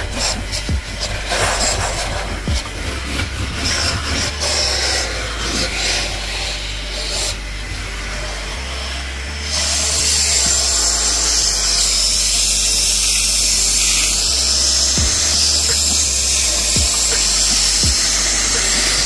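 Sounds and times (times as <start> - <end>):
vacuum cleaner running: 0.0 - 19.0.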